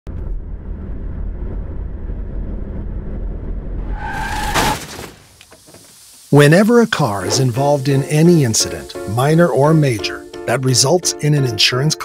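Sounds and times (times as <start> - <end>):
engine and road rumble: 0.1 - 9.0
tire screech: 3.7 - 5.2
sharp hit: 3.7 - 5.4.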